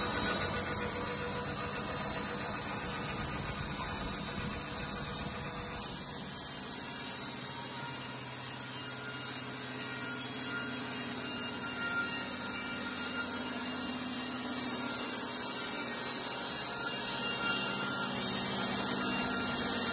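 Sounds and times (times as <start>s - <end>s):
band sawmill humming and hissing: 0.0s - 19.9s.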